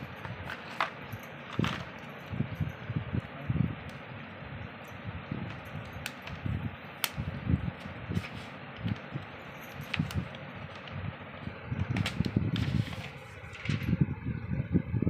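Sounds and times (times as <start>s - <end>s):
paper and card rustling: 0.1s - 2.3s, 5.5s - 11.0s, 11.8s - 13.9s.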